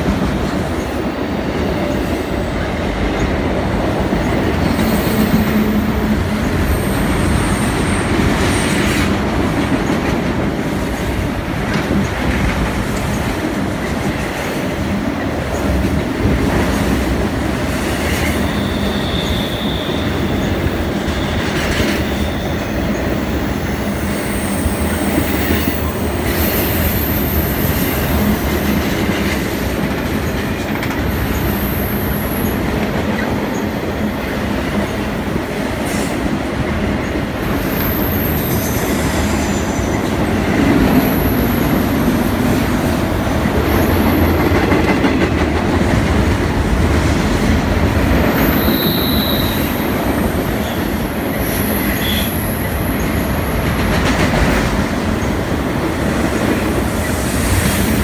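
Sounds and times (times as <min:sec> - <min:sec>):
train wheels rumbling on rail: 0:00.0 - 0:58.0
high-pitched wheel squeals: 0:18.4 - 0:20.5, 0:48.4 - 0:49.9.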